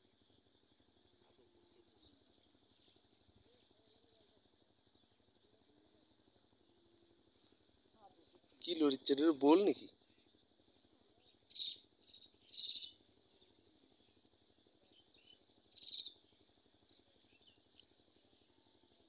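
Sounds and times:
high bird chirps: 0:11.5 - 0:13.0, 0:15.7 - 0:16.2.

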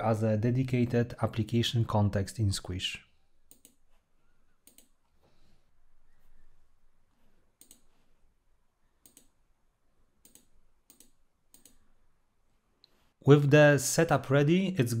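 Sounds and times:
faint mouse clicks: 0:03.5 - 0:04.0, 0:04.6 - 0:05.2, 0:07.6 - 0:08.0, 0:09.0 - 0:09.4, 0:10.2 - 0:11.9.

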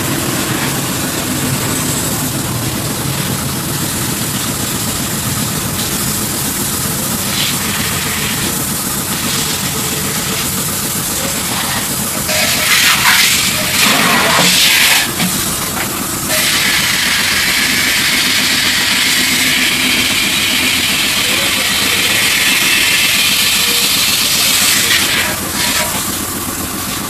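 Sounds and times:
hose spraying water: 0:00.0 - 0:27.0.

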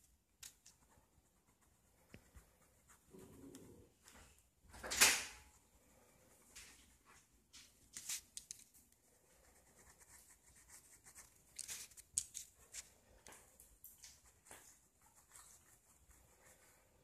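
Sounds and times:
pen scratching on paper: 0:00.4 - 0:04.2, 0:09.0 - 0:12.9.

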